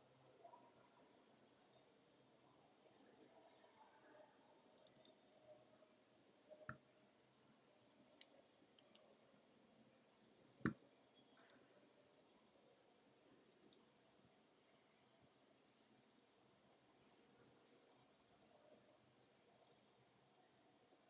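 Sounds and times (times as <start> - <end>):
faint ticks: 13.6 - 13.9.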